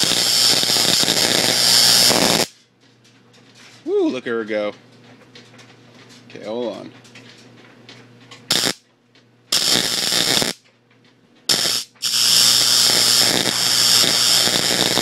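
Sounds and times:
tesla coil spark-gap buzzing: 0.0 - 2.6, 8.5 - 8.8, 9.5 - 10.6, 11.5 - 15.0.

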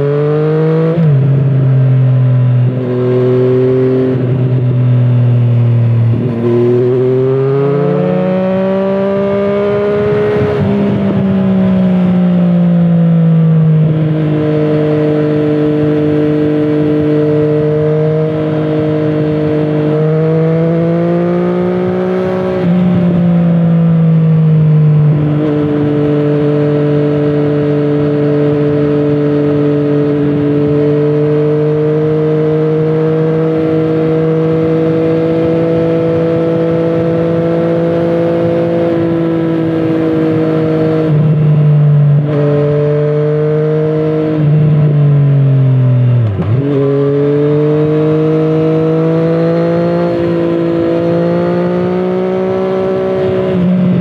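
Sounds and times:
motorcycle engine under load: 0.0 - 54.0.

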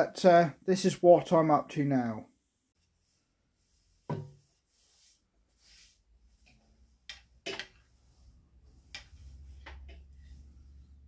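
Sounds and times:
wooden stick knocks and taps: 4.1 - 4.3, 6.4 - 7.8, 8.9 - 10.1.

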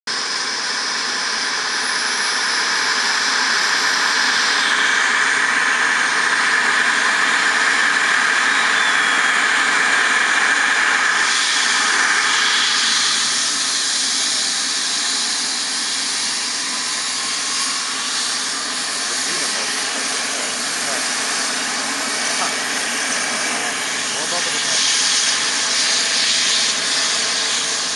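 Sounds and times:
helicopter turbine whine: 0.1 - 27.9
rushing hiss of rotor: 0.2 - 27.9.

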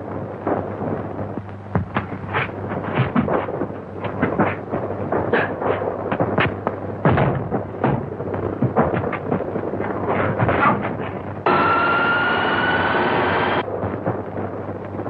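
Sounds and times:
low soundtrack hum: 11.3 - 13.8.

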